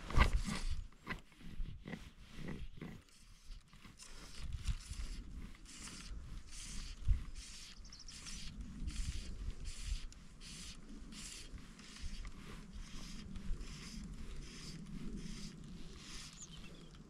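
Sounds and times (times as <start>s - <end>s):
fly line rasping through guides: 0.0s - 17.0s.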